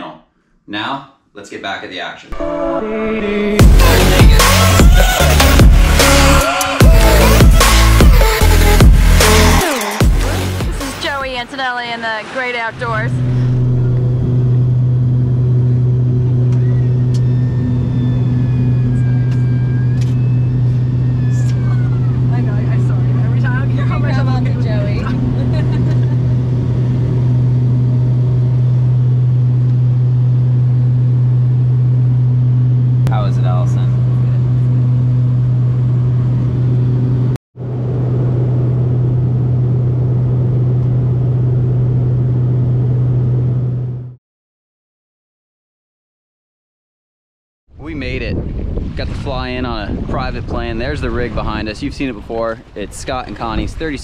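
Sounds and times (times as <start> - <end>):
high whine: 2.3 - 11.6, 12.2 - 44.2
propeller drone: 3.6 - 44.2.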